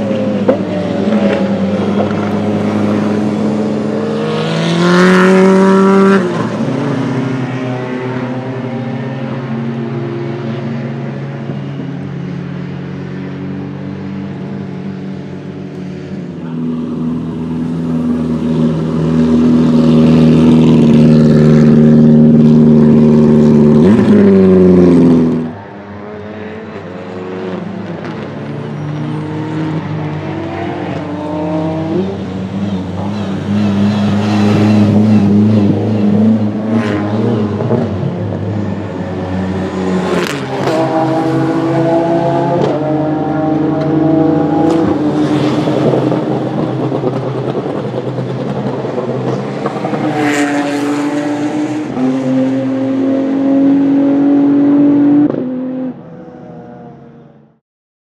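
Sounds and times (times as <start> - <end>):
race car engine passing by: 15.9 - 57.0.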